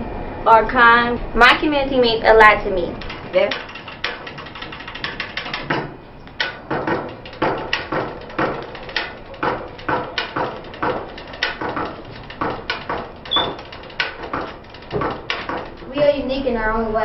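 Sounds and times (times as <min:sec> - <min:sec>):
percussive dance beat: 0:03.0 - 0:16.0
high squeak: 0:13.3 - 0:13.6.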